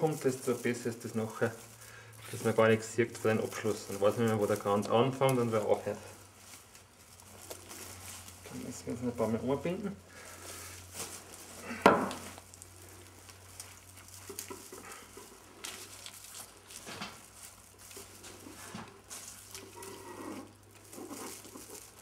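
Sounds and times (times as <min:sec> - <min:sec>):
fir sprigs rustling and crackling: 0:00.0 - 0:22.0.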